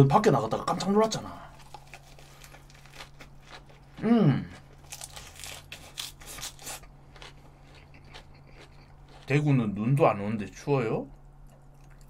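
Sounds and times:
crisp lettuce chewing: 0:01.5 - 0:09.6.

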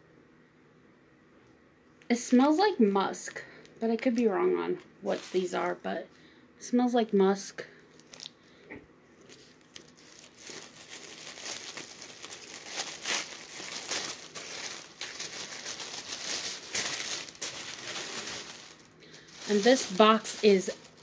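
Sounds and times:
tissue paper crinkling: 0:05.1 - 0:05.8, 0:07.9 - 0:08.3, 0:09.2 - 0:21.0.

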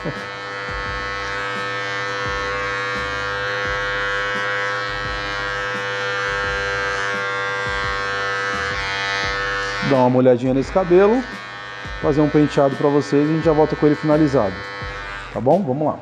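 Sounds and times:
electric hair clipper buzzing: 0:00.0 - 0:16.0.

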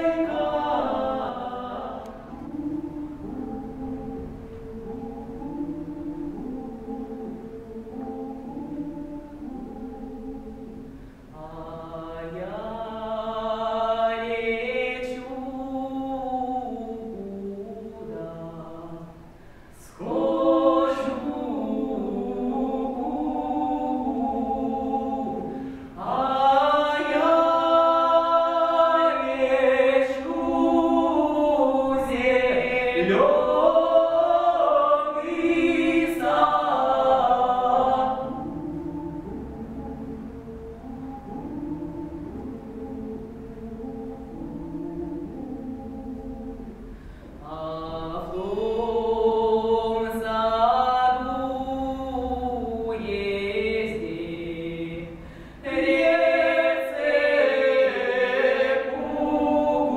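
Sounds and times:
man and woman singing duet: 0:00.0 - 0:03.6, 0:19.8 - 0:42.7.

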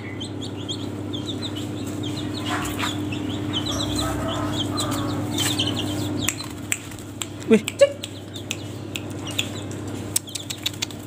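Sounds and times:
chicks peeping: 0:00.0 - 0:11.0
steady low hum: 0:00.0 - 0:11.0.

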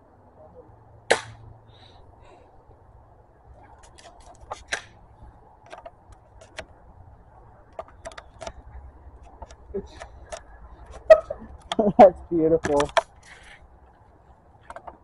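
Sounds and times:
plastic doll clicking and rattling: 0:05.6 - 0:06.7, 0:07.7 - 0:08.6, 0:12.6 - 0:13.2, 0:14.6 - 0:15.0.

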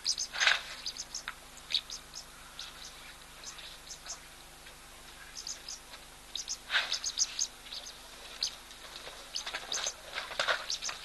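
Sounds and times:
louder lower bird calls: 0:00.0 - 0:04.4, 0:05.2 - 0:08.6, 0:09.2 - 0:11.0
small birds high chirps: 0:00.0 - 0:04.4, 0:05.1 - 0:11.0.

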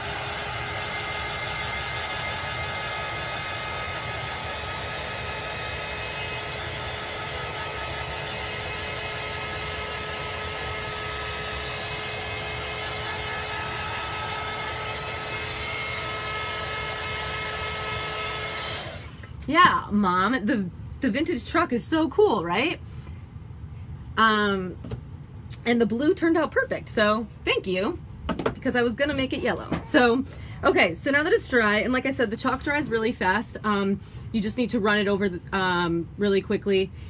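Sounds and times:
heat gun blowing with whine: 0:00.0 - 0:19.4.

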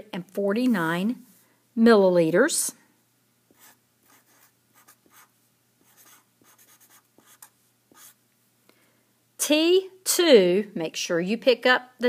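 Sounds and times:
marker writing on paper: 0:03.5 - 0:08.2.

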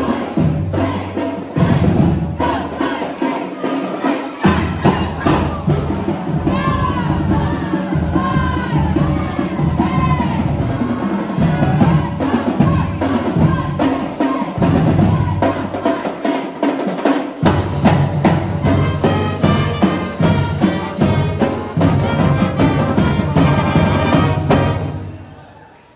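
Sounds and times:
drums beating: 0:00.0 - 0:25.3
marching band playing: 0:00.0 - 0:25.5
brass horns: 0:17.4 - 0:25.5.

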